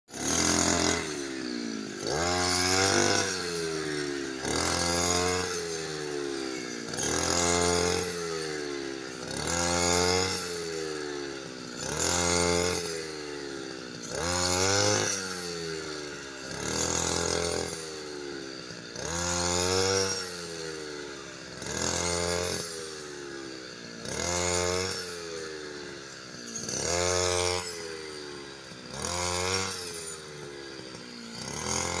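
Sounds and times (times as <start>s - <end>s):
brush cutter engine revving: 0.1s - 32.0s.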